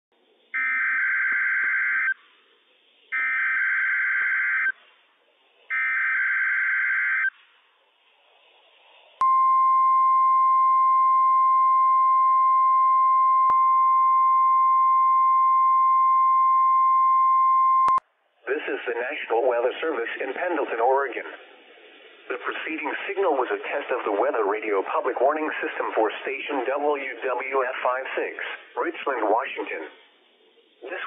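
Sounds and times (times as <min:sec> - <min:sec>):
steady high alarm tone: 0:00.6 - 0:02.2, 0:03.1 - 0:04.8, 0:05.7 - 0:07.3.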